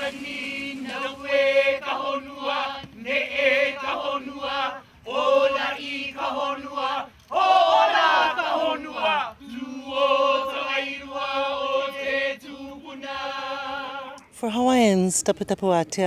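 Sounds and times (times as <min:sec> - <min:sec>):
group chanting: 0:00.0 - 0:14.2.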